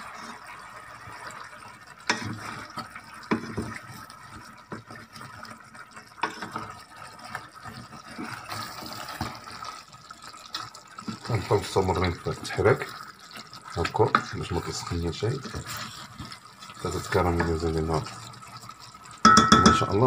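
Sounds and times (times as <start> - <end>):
sauce bubbling and sizzling: 0.0 - 20.0
spoon knocking on pot: 19.2 - 20.0.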